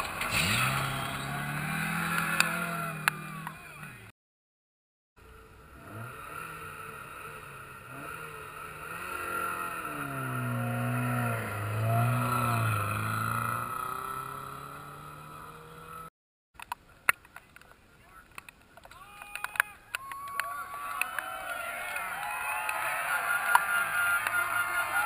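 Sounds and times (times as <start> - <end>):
rally car passing at speed: 0.0 - 4.0, 5.8 - 16.1.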